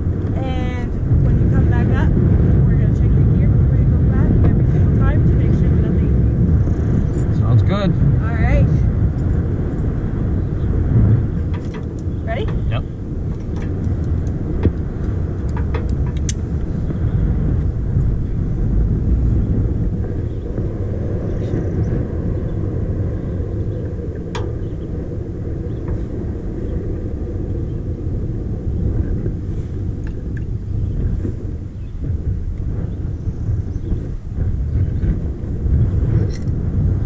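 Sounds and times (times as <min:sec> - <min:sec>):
wind buffeting microphone: 0:00.0 - 0:37.0.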